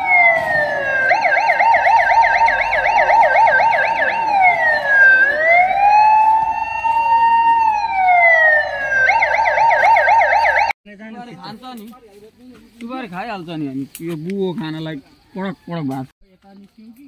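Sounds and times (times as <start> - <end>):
electronic siren yelp and wail: 0.0 - 10.8.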